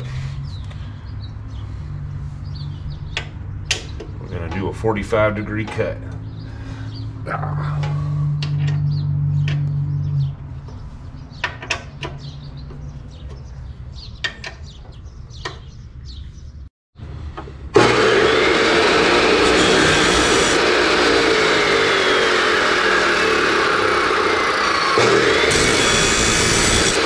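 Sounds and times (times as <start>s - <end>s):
chop saw motor running: 17.4s - 27.0s.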